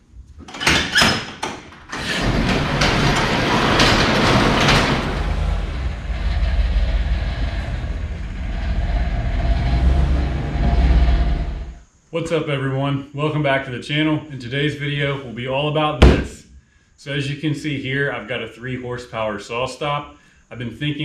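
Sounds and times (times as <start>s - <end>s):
garage door latch clacking: 0.4s - 6.1s
garage door rollers rattling: 0.4s - 11.8s
pickup engine rumbling: 2.6s - 11.8s.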